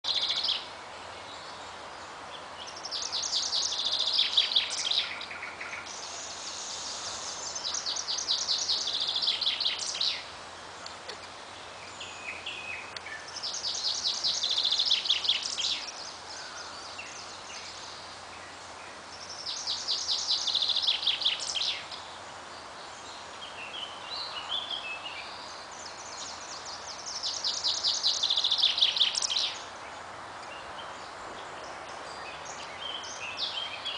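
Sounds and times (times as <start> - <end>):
chaffinch singing trills: 0.0 - 33.9.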